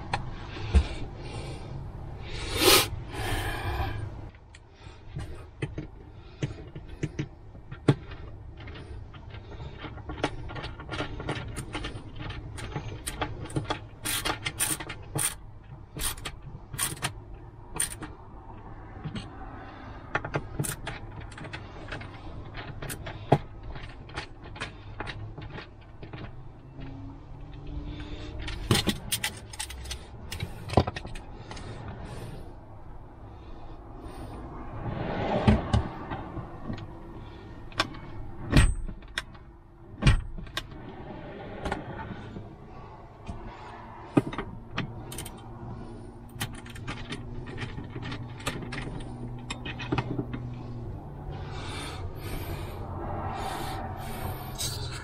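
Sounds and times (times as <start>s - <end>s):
small clicks and knocks: 4.3s - 32.0s, 43.2s - 51.5s.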